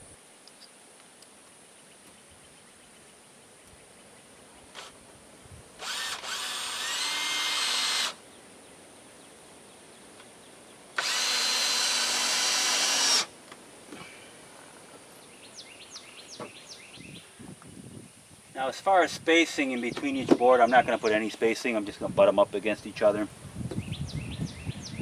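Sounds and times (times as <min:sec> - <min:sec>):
cordless drill driving screws: 0:04.7 - 0:05.0, 0:05.8 - 0:08.2, 0:11.0 - 0:13.3.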